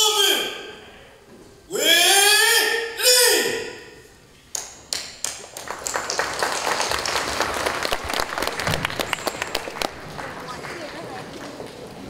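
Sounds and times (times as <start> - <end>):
crowd applause: 5.2 - 12.0.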